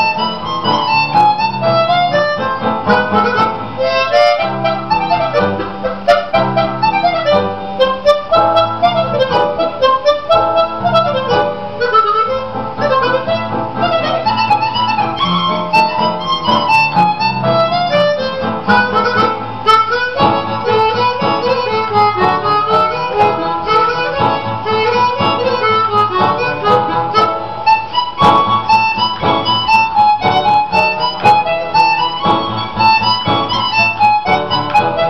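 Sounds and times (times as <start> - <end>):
harmonica playing a melody: 0.0 - 35.0.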